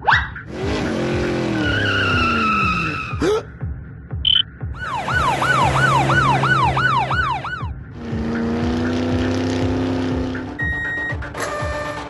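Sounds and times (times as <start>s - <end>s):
police siren yelping: 4.3s - 7.7s
engine drone: 4.3s - 11.4s.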